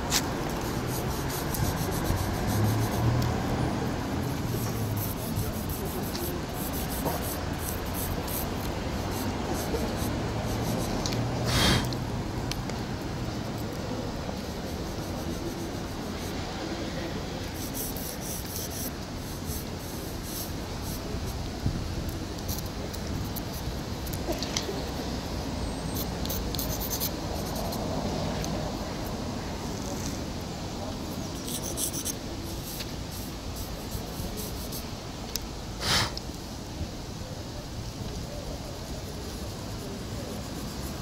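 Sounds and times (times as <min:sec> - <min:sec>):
fingers rubbing pastel on asphalt: 0:00.0 - 0:12.0, 0:13.6 - 0:16.5, 0:17.4 - 0:21.4, 0:25.9 - 0:27.9, 0:31.1 - 0:34.9, 0:39.2 - 0:41.0.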